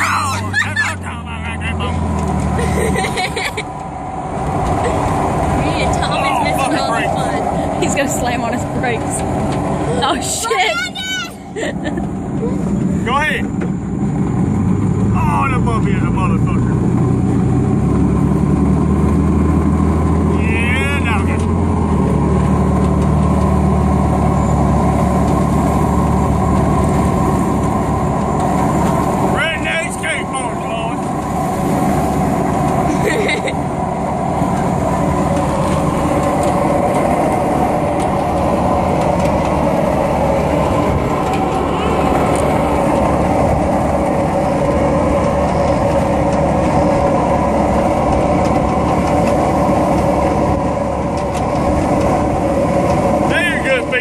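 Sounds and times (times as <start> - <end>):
pickup truck engine running: 0.0 - 54.0
tyres rolling on asphalt: 0.0 - 54.0.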